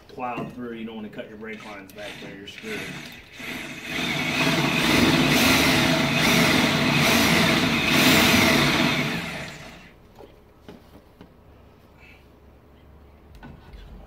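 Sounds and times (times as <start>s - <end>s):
electric drill cutting into steel: 1.5s - 9.9s.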